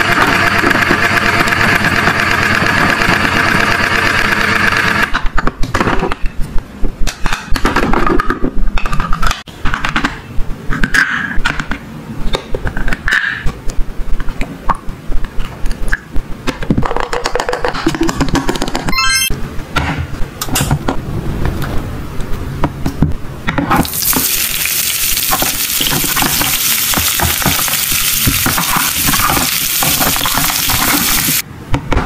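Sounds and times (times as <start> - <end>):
toy grill electric hum: 0.0 - 5.5, 23.7 - 31.5.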